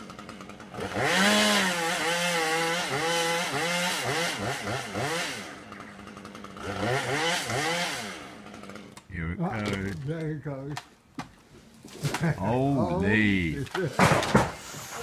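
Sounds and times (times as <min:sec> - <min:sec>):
chainsaw revving: 0:00.0 - 0:09.4.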